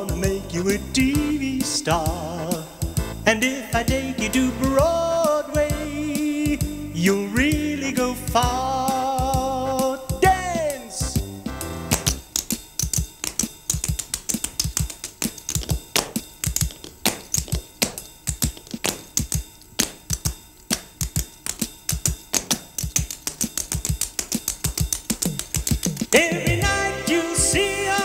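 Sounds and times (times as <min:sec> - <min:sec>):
tap shoes clicking on stage: 0:11.9 - 0:26.2.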